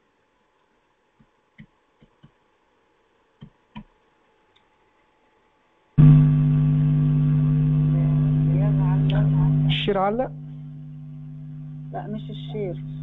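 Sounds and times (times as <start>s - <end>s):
faint steady hum: 0.0s - 13.0s
loud electronic buzz: 6.0s - 13.0s.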